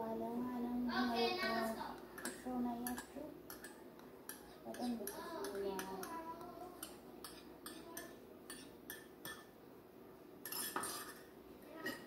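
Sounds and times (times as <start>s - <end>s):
metal spoon clinking on bowl: 2.2s - 6.2s, 6.8s - 9.5s, 10.4s - 12.0s.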